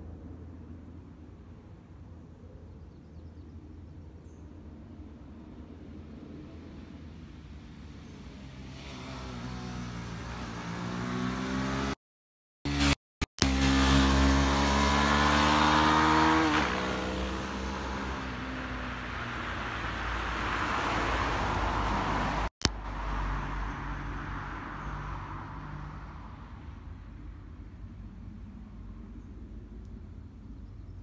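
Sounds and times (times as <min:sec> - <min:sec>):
van and car passing: 0:05.5 - 0:12.0, 0:12.7 - 0:31.0
engine revving past: 0:08.2 - 0:12.0, 0:12.7 - 0:26.3.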